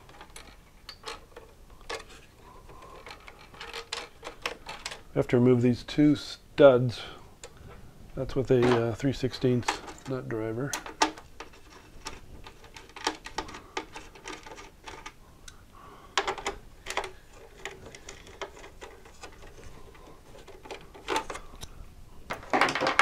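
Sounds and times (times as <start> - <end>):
metallic clicks and rattles: 0.0 - 5.1, 8.5 - 15.2, 16.1 - 21.7.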